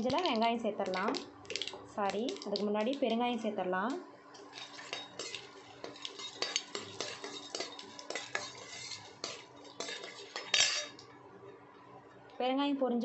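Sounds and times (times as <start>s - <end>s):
steel ladle scraping a pan: 4.4s - 11.0s.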